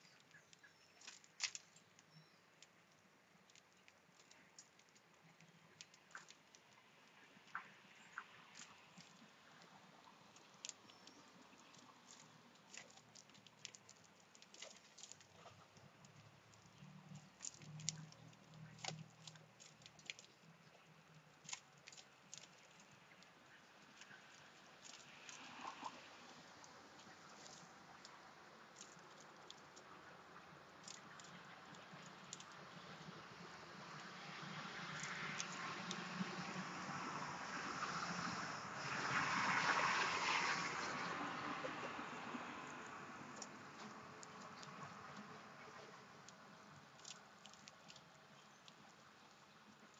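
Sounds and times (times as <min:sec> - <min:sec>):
birds pecking seed: 0:00.0 - 0:37.2, 0:40.8 - 0:49.9.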